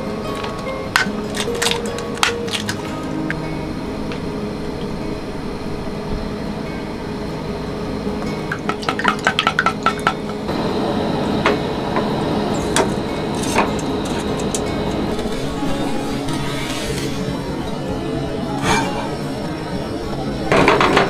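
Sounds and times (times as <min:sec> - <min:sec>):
dishes and utensils clinking: 0:00.0 - 0:03.4, 0:12.6 - 0:21.0.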